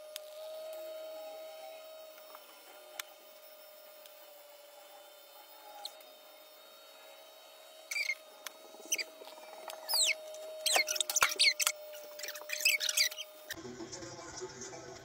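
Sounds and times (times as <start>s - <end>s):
high-pitched falling squeaks: 7.9s - 8.2s, 8.8s - 13.6s.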